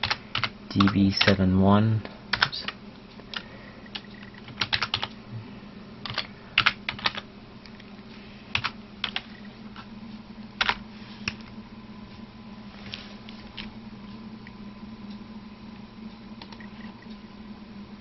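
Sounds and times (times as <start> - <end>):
typing on a keyboard: 0.0 - 1.4, 2.4 - 5.1, 6.0 - 7.2, 8.6 - 9.4
steady low hum: 0.0 - 18.0.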